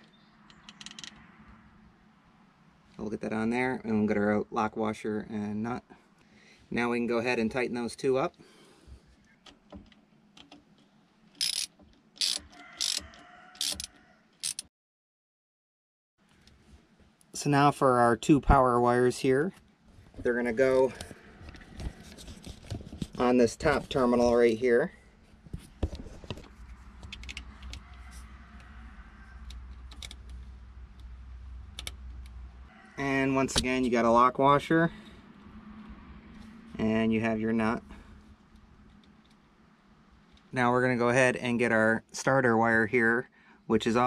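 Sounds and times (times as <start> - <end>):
small metallic clicks: 0.0 - 1.2, 9.3 - 14.7, 29.4 - 31.1, 31.7 - 32.4
socket ratchet clicking: 0.5 - 1.2, 11.4 - 14.6.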